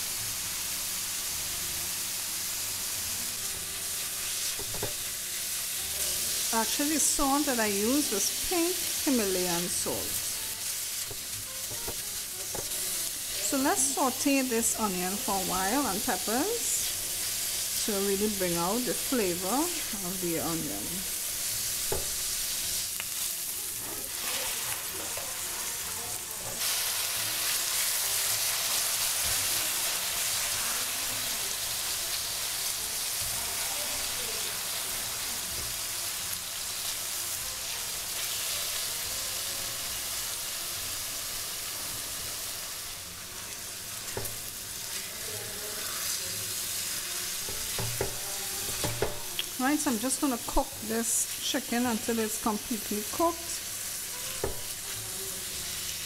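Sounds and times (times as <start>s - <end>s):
food sizzling in oil: 0.0s - 56.0s
spatula knocking against pan: 21.9s - 22.2s, 47.5s - 49.3s, 54.4s - 54.7s.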